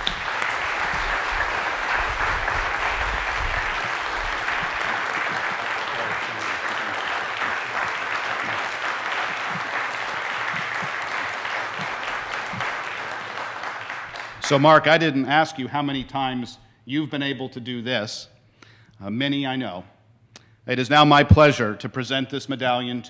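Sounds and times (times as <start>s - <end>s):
audience applauding: 0.0s - 14.7s.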